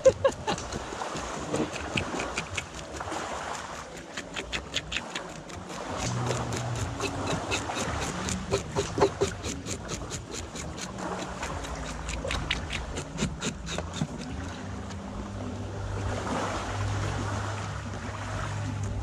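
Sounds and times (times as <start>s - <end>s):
knife scraping fish scales: 0.0s - 14.4s.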